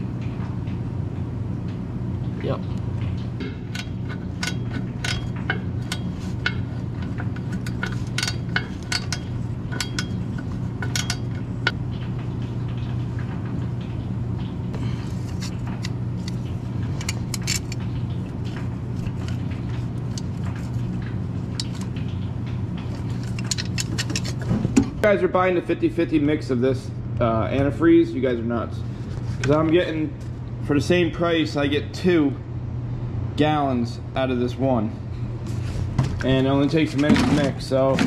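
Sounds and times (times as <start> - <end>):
low hum: 0.0 - 31.2
metal tools clinking: 3.8 - 11.5.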